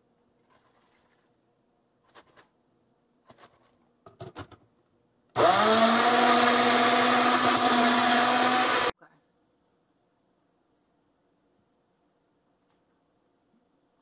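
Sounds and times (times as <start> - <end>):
blender motor running: 5.4 - 8.9.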